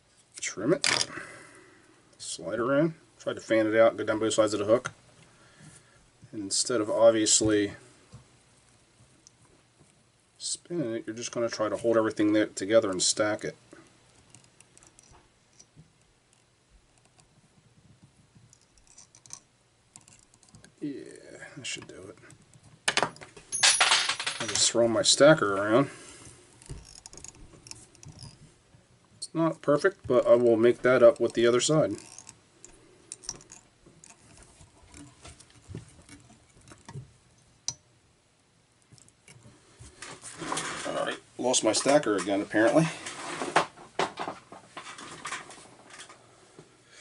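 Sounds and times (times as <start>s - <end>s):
light handling noise: 11.1s - 37.8s, 38.8s - 46.2s
fingers handling deer hair: 11.2s - 20.9s.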